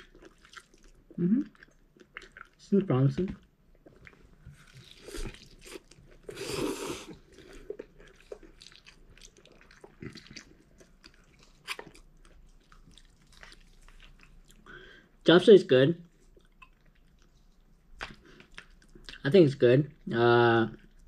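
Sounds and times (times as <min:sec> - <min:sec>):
wet chewing: 0:00.0 - 0:02.6, 0:03.7 - 0:14.7, 0:16.2 - 0:19.2
person slurping noodles: 0:04.7 - 0:07.7.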